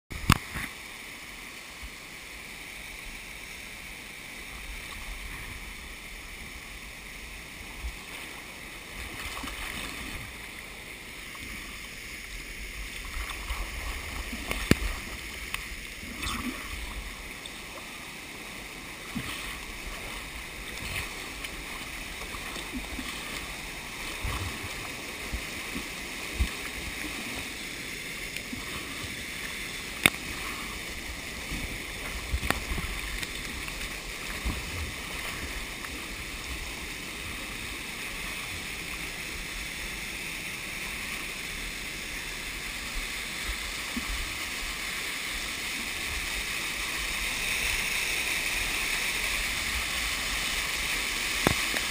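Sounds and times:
waterfall rushing: 0.7s - 51.9s
water lapping and splashing: 1.8s - 51.9s.

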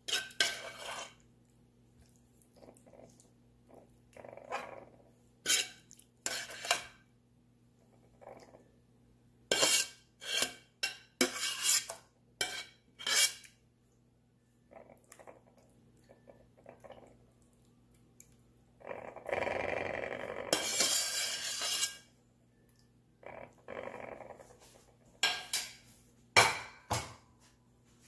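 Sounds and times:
metal scraping through sauce: 0.0s - 1.2s, 5.4s - 7.0s, 9.5s - 13.6s, 20.5s - 22.2s.

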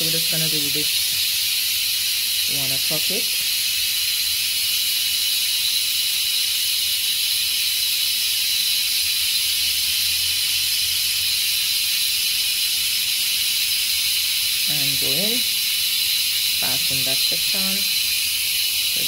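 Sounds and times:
loud high-pitched hiss: 0.0s - 7.1s, 14.0s - 19.0s.

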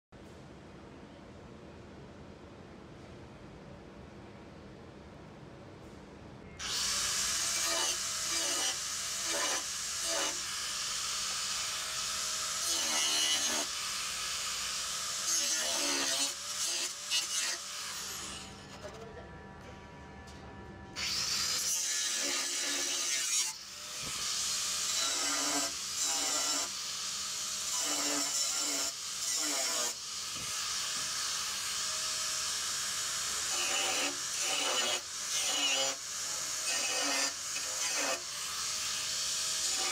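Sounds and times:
angle grinder grinding steel: 6.6s - 18.9s, 21.0s - 39.9s.

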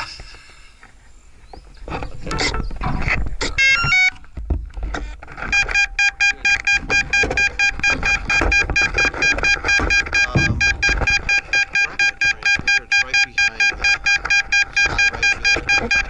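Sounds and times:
rapid electronic beeping: 5.4s - 16.0s.

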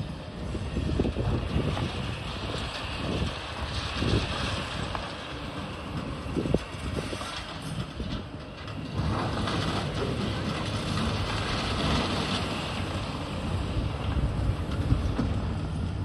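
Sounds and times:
excavator engine and hydraulics: 0.0s - 16.0s
rubble rumbling and rattling down: 0.6s - 16.0s.

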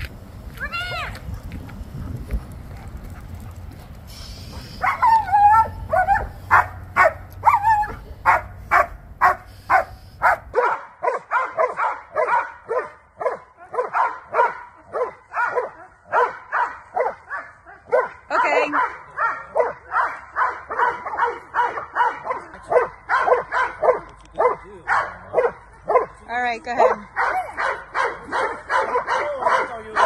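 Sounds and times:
low wind rumble: 0.0s - 10.6s
dogs barking aggressively: 1.2s - 30.0s.

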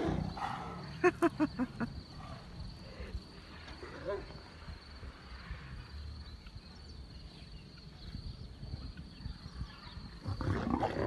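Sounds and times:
big cat growling: 0.0s - 1.0s, 10.2s - 11.0s
insect trill: 0.0s - 11.0s.

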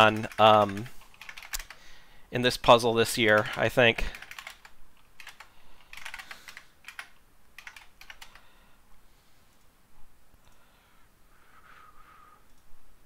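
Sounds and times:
typing on computer keyboard: 0.0s - 1.8s, 3.3s - 8.5s.

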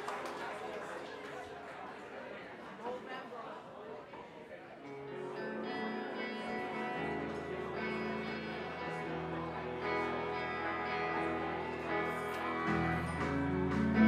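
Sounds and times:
rock band with amplified guitars: 4.9s - 14.0s.

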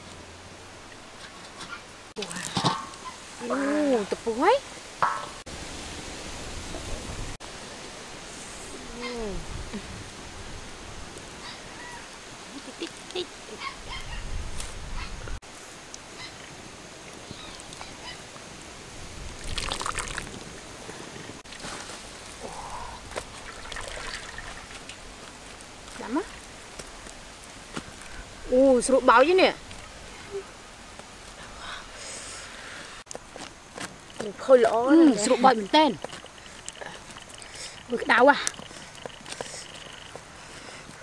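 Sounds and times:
water splashing and trickling: 19.0s - 26.7s, 33.3s - 40.8s.

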